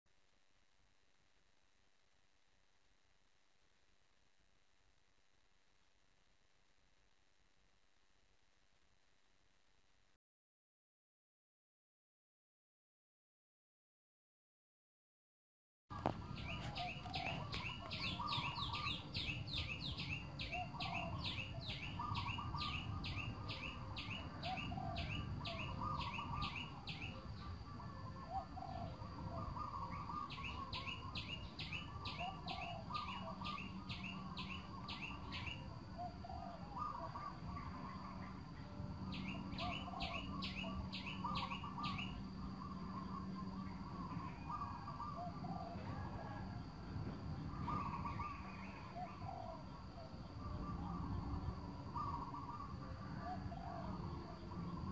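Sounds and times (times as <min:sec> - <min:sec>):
birds calling softly: 0:15.9 - 0:27.2, 0:28.3 - 0:46.4, 0:47.4 - 0:51.4, 0:52.0 - 0:53.8.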